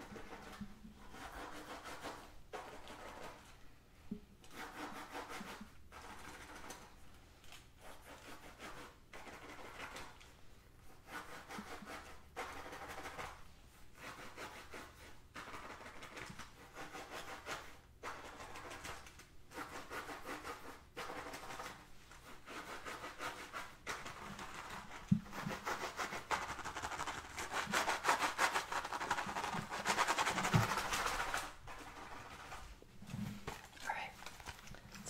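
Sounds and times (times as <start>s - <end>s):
fingernails scratching fabric pouch: 22.6s - 32.6s.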